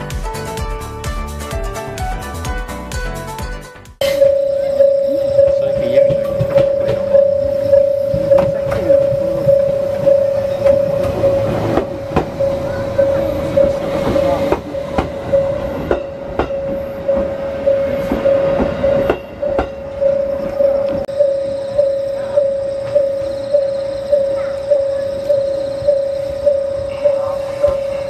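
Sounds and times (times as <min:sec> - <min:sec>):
level crossing bell ringing: 0:04.0 - 0:28.0
train wheels rumbling and clattering: 0:05.2 - 0:28.0.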